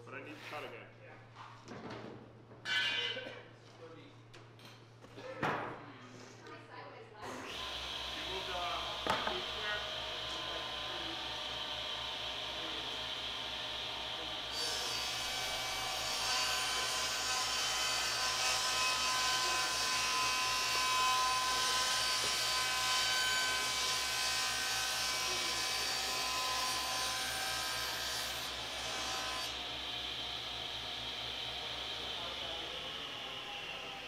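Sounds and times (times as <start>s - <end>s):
power tool running on wood: 7.3s - 34.0s.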